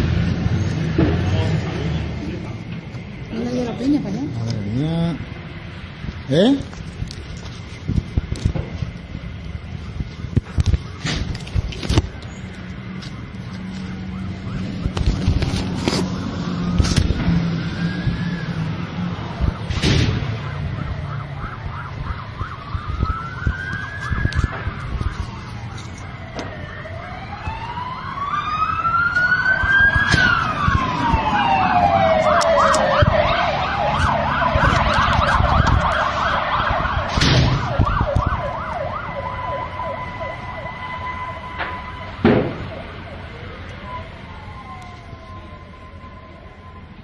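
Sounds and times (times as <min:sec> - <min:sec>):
emergency sirens wailing: 0:00.0 - 0:47.0
steady held siren tone: 0:13.1 - 0:15.2, 0:16.0 - 0:47.0
fast warbling siren: 0:13.2 - 0:15.2, 0:16.0 - 0:47.0
sharp bangs: 0:19.6 - 0:20.8, 0:36.9 - 0:38.0, 0:41.5 - 0:43.0.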